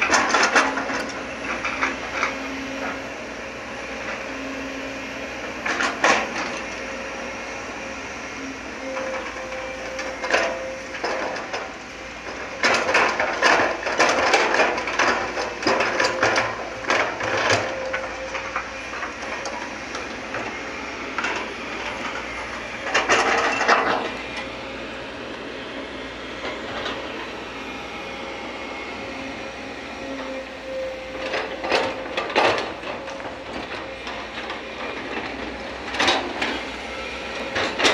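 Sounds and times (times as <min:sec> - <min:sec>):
excavator engine running: 0:00.0 - 0:37.9
soil and rocks clattering into truck: 0:12.3 - 0:20.5.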